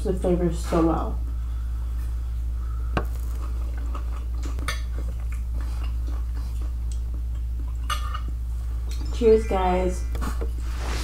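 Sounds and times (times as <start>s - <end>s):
steady low hum: 0.0s - 11.0s
soft chewing: 1.8s - 9.2s.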